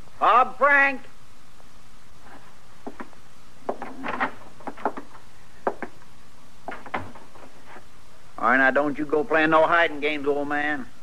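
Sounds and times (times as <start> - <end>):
knocks on wood: 3.7 - 6.0.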